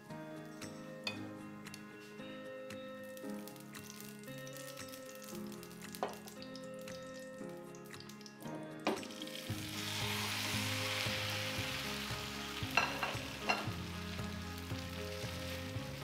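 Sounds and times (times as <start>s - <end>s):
batter sizzling in frying pan: 3.2s - 8.4s, 9.0s - 16.0s.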